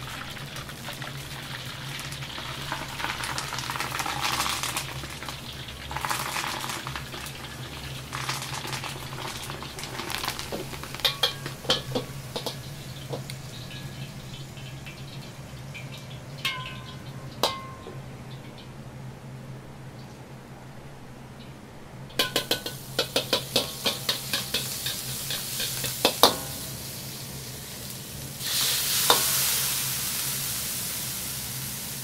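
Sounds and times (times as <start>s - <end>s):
hot liquid hissing and splashing: 0.0s - 16.0s, 22.2s - 32.0s
metal strainer clinking on pot: 11.0s - 12.6s, 16.4s - 17.9s.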